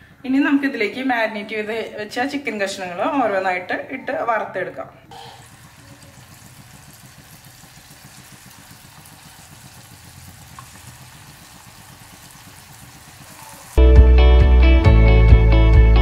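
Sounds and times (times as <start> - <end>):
oil sizzling and bubbling: 5.1 - 13.8
loud guitar music: 13.8 - 16.0.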